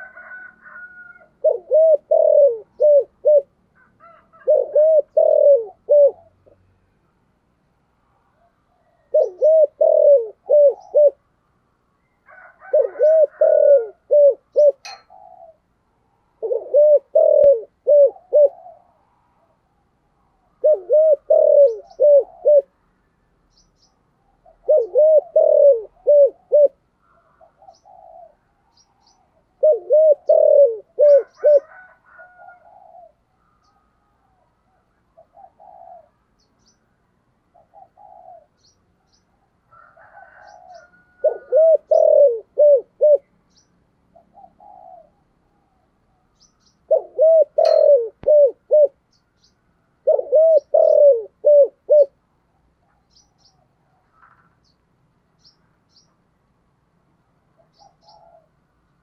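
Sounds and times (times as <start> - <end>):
dove cooing: 0.0 - 6.6, 8.2 - 11.2, 12.2 - 22.8, 24.2 - 36.4, 37.5 - 43.4, 44.1 - 49.0, 50.0 - 54.6, 57.5 - 58.6
small birds chirping: 8.0 - 11.2, 21.4 - 22.6, 23.2 - 29.6, 33.0 - 39.5, 43.1 - 49.7, 52.0 - 56.3, 57.5 - 59.0.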